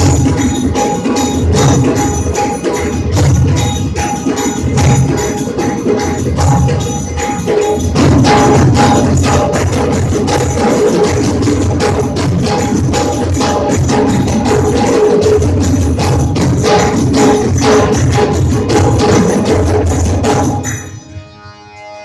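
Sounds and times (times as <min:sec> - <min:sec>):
folk percussion ensemble drumming: 0:00.0 - 0:20.9
sustained pitched instrument: 0:00.0 - 0:22.0.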